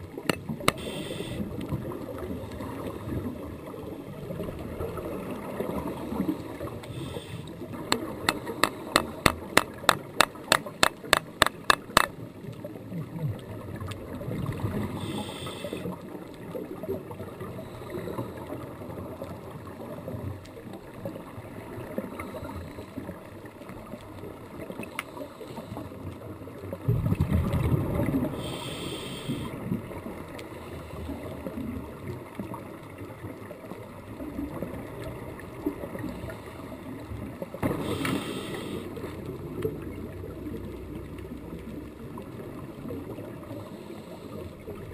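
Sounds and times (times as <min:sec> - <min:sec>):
sharp clicks: 0:07.9 - 0:12.1
muffled underwater rumble: 0:12.2 - 0:44.9
regulator bubbles gurgling: 0:25.6 - 0:30.2.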